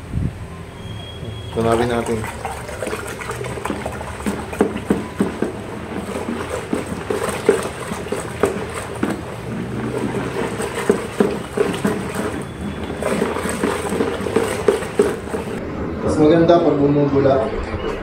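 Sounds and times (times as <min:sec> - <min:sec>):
thick mixture sloshing: 0:01.3 - 0:15.6
stick knocking plastic bucket: 0:01.6 - 0:15.6.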